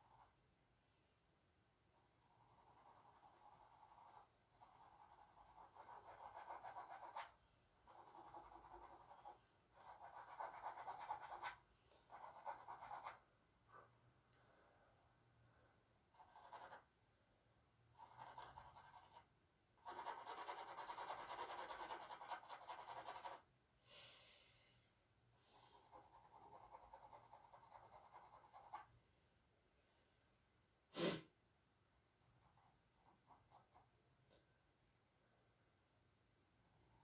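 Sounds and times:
charcoal scratching on canvas: 2.2s - 7.3s, 7.9s - 13.2s, 19.8s - 23.4s.

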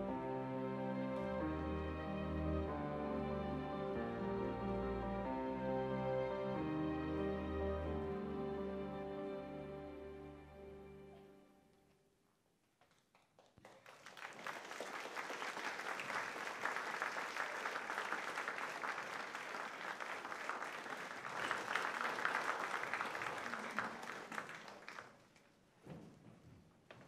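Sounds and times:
audience applauding: 12.9s - 25.5s.

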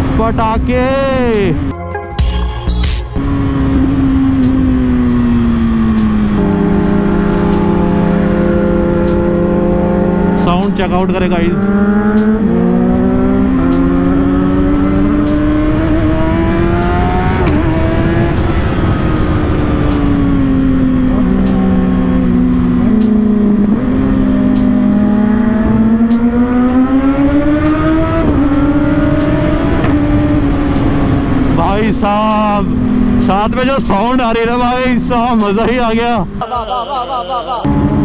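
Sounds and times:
motorcycle engines revving: 0.0s - 1.7s, 3.1s - 38.0s.

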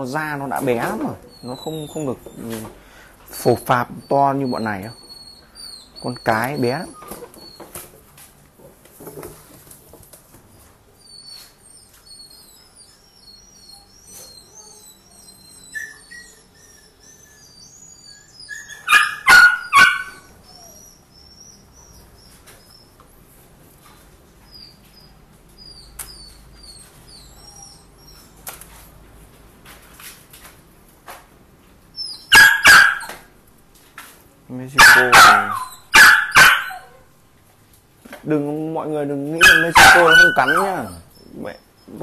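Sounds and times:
small birds chirping: 0.1s - 7.8s, 11.0s - 23.1s, 23.8s - 28.4s
dog barking: 18.8s - 20.3s, 32.3s - 33.2s, 34.8s - 37.0s, 39.4s - 40.9s.

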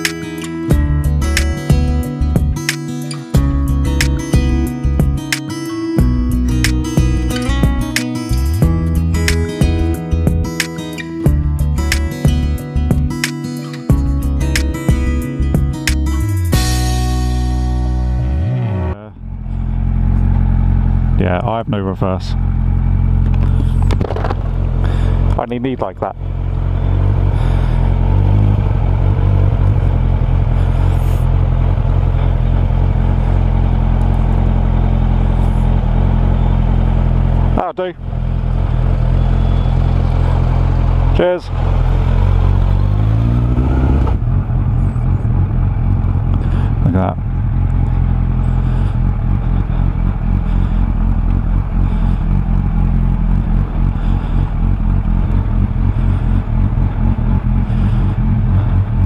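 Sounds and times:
motorcycle engine running: 0.0s - 59.0s
wind and road noise: 18.0s - 59.0s.

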